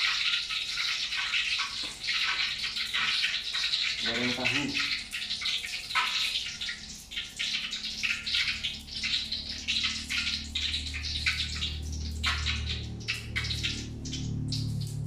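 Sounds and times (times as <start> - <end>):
oil crackling and spitting: 0.0 - 15.0
tofu sizzling in hot oil: 0.0 - 15.0
low hum: 7.8 - 15.0.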